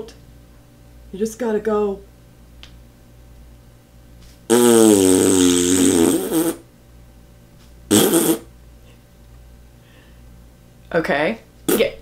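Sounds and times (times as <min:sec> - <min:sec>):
person making buzzy nonsense noise: 0:04.5 - 0:06.7, 0:07.9 - 0:08.5, 0:11.7 - 0:12.0.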